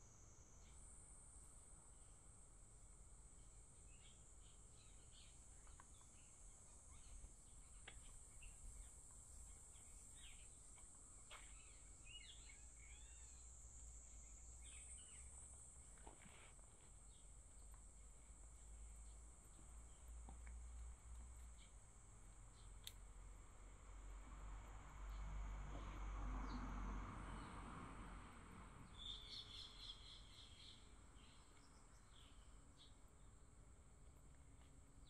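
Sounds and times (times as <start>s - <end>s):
faint birds chirping: 0.0s - 23.7s, 28.8s - 35.0s
high insect buzz: 3.4s - 19.2s.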